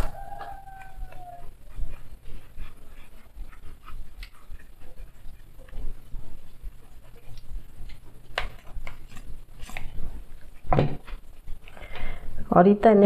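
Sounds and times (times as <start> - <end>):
dog whimpering: 0.0 - 2.2.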